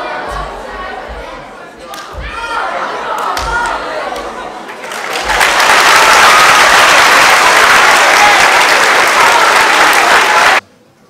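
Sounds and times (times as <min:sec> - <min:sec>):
audience applauding: 0:03.2 - 0:10.6.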